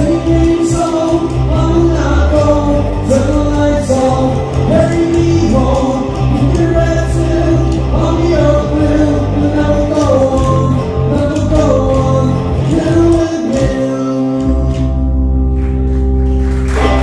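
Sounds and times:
man singing: 0.0s - 15.2s
live band playing: 0.0s - 17.0s.

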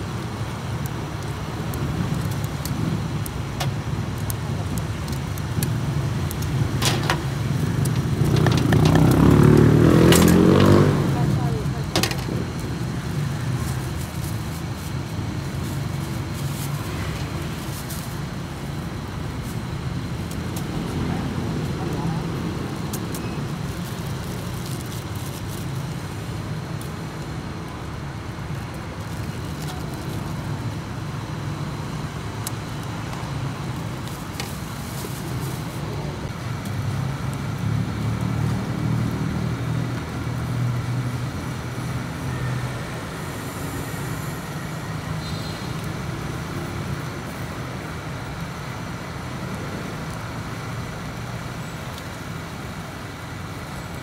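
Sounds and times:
constant hiss: 0.0s - 54.0s
road traffic rumble: 0.0s - 54.0s.

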